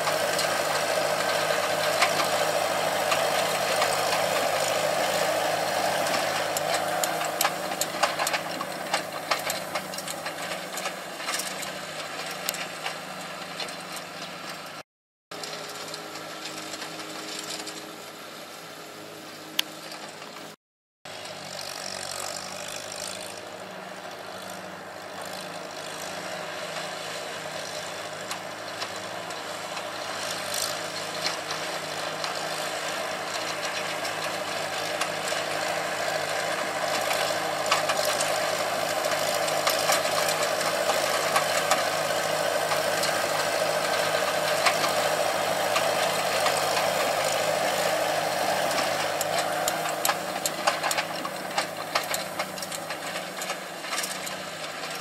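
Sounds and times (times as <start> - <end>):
hay rake tines rattling: 0.0 - 14.8, 21.1 - 55.0
tractor engine running: 0.0 - 55.0.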